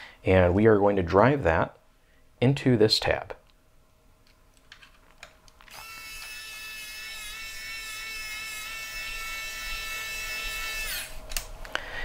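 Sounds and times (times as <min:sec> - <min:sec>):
electric screwdriver whirring: 0:05.7 - 0:11.2.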